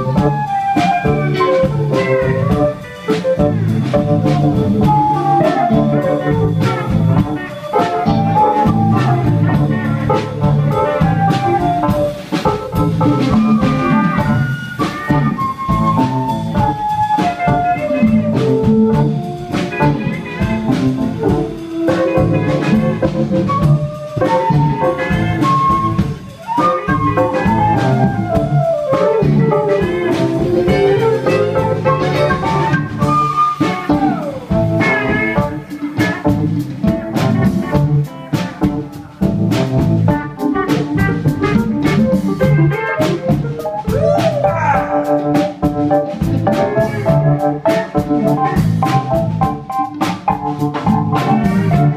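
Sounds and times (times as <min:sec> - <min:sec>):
flute playing: 0:00.0 - 0:36.3
live folk-rock band: 0:00.0 - 0:51.9.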